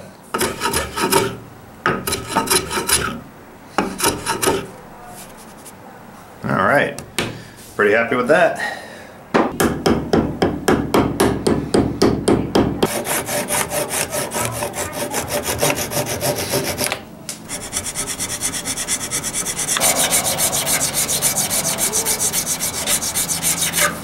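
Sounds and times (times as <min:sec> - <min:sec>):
hand rasp filing wood: 0:00.4 - 0:01.4, 0:02.1 - 0:03.2, 0:03.8 - 0:04.7, 0:12.9 - 0:24.0.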